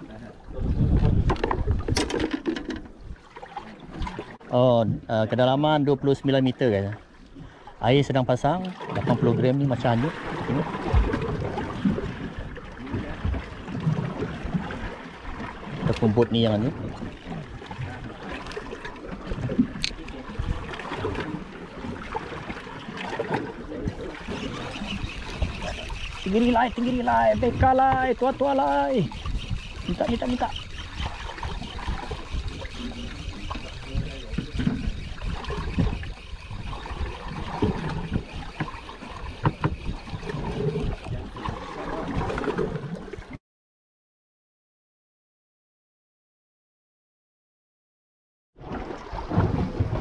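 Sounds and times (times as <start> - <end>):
water lapping against boat hull: 0.0 - 43.4, 48.6 - 50.0
wind buffeting microphone: 0.4 - 2.1, 23.7 - 42.8.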